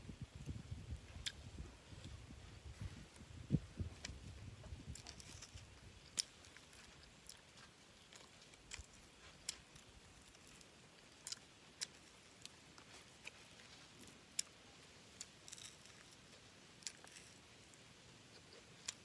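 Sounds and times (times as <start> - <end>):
person chewing meat: 4.9 - 14.6.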